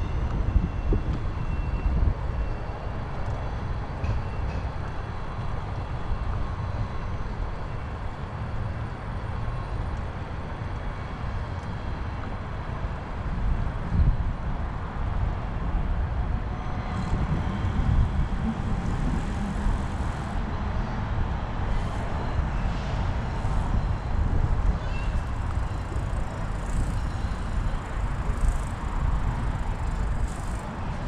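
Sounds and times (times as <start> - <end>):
wind rushing over microphone: 0.0 - 2.5, 11.0 - 31.0.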